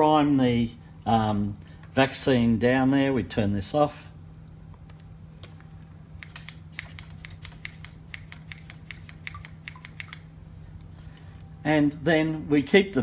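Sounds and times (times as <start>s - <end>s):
vaccinator gun trigger clicking: 6.2s - 10.3s.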